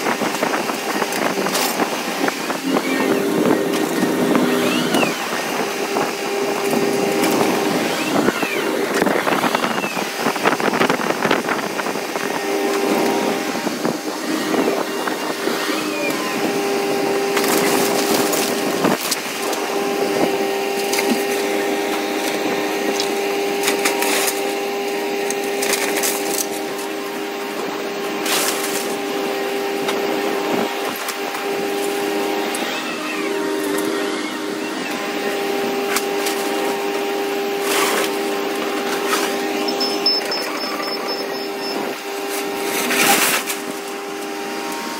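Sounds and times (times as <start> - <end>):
excavator hum: 0.0 - 44.9
wood splintering and debris crashing: 17.2 - 26.9, 42.2 - 44.1.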